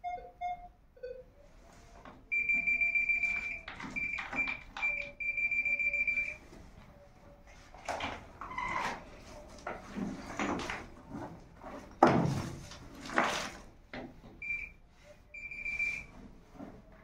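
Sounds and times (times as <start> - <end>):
electronic detector beeps: 0.0 - 1.5, 2.3 - 6.4, 14.4 - 16.1.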